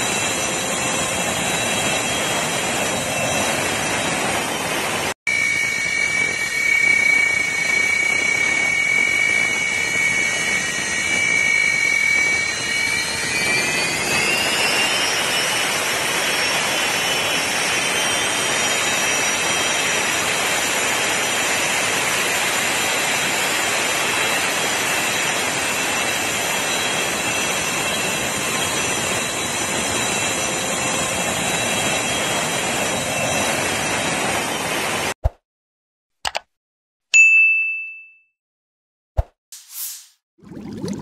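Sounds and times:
aircraft turbine engine whine: 0:00.0 - 0:35.2
short clicks: 0:36.2 - 0:36.5.

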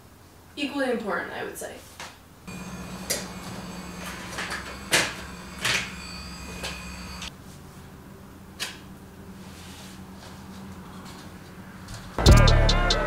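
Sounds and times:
steady low hum: 0:02.4 - 0:07.4.

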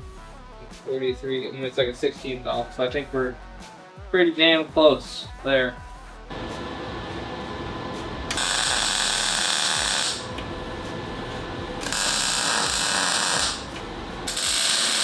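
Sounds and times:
shop power tool running: 0:06.3 - 0:15.0.

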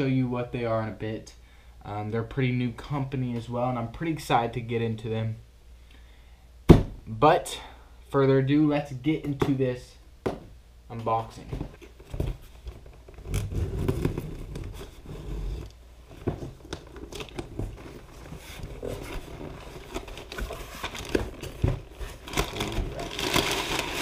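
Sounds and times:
cardboard flaps scraping: 0:11.4 - 0:24.0
packing paper crinkling: 0:16.5 - 0:24.0
packing tape tearing: 0:16.6 - 0:24.0.

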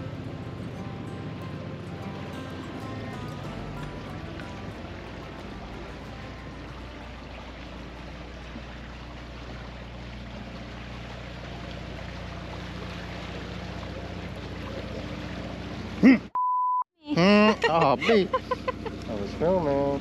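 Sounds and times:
boat engine running: 0:00.0 - 0:16.3, 0:17.1 - 0:20.0
water rushing along hull: 0:00.0 - 0:16.3, 0:17.1 - 0:20.0
person exclaiming: 0:17.1 - 0:18.4.

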